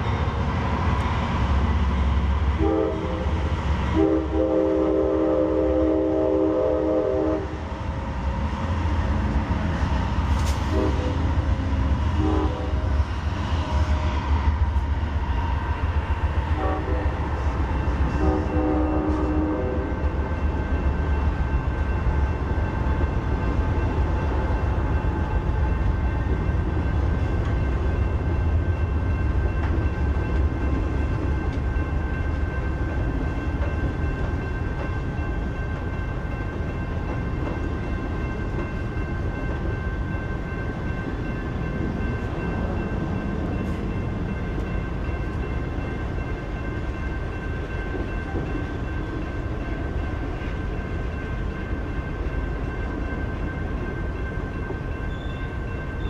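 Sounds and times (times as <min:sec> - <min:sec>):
train wheels rumbling on rail: 0:00.0 - 0:56.0
train horn blasts: 0:02.6 - 0:07.6, 0:10.6 - 0:13.0, 0:16.5 - 0:20.0.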